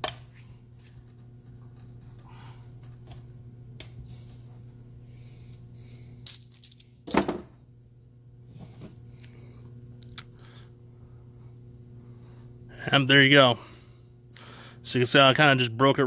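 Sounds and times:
metal parts clicking and clinking: 0:06.3 - 0:07.5.

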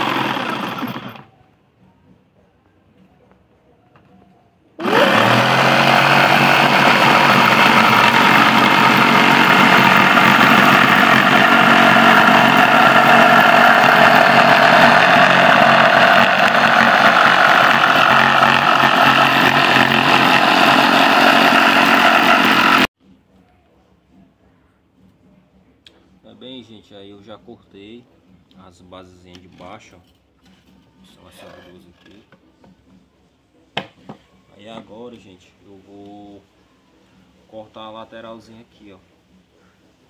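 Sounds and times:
electric jigsaw cutting wood: 0:00.0 - 0:01.3, 0:04.8 - 0:22.9.

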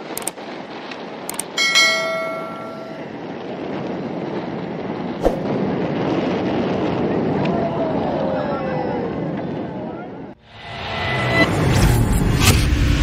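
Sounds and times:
sea noise: 0:00.0 - 0:09.3
wind: 0:00.0 - 0:13.0
mouse clicks: 0:00.1 - 0:00.4
bell chime: 0:01.6 - 0:03.1.

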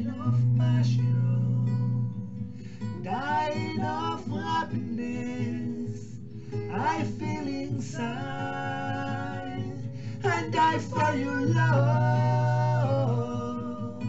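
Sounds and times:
person singing: 0:00.0 - 0:02.0, 0:03.0 - 0:14.0
acoustic guitar: 0:00.0 - 0:14.0.

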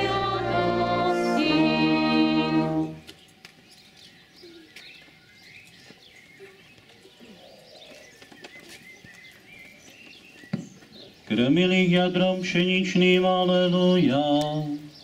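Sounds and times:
small birds chirping: 0:03.0 - 0:11.8, 0:14.0 - 0:15.0.

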